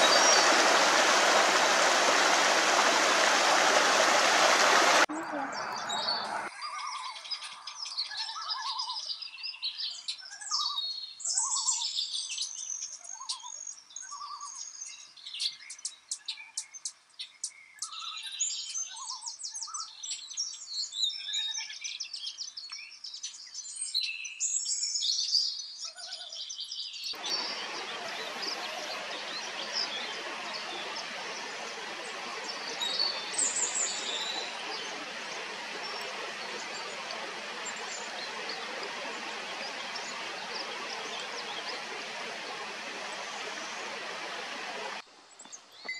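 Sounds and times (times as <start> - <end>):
running water rushing: 0.0 - 6.5, 27.2 - 45.0
songbirds singing and chirping: 0.0 - 45.9.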